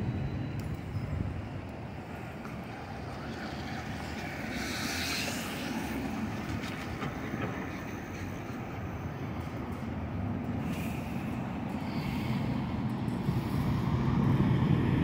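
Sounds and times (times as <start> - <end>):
city street traffic rumble: 0.0 - 15.0
traffic hiss: 2.0 - 7.0.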